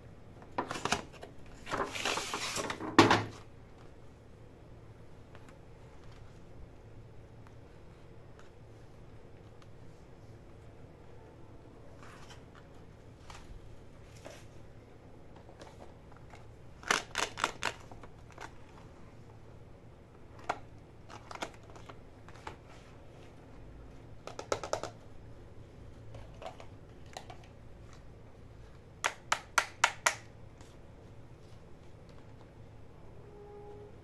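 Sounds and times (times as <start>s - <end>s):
plastic toys clicking on table: 24.2s - 25.0s.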